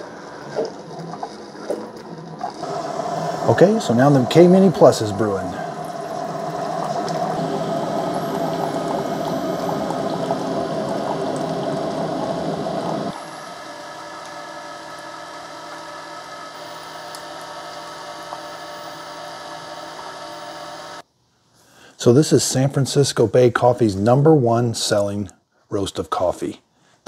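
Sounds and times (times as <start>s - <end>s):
coffee streaming into mug: 0.0s - 15.9s
coffee maker pump humming: 0.0s - 21.0s
faint steady hum: 0.0s - 22.1s.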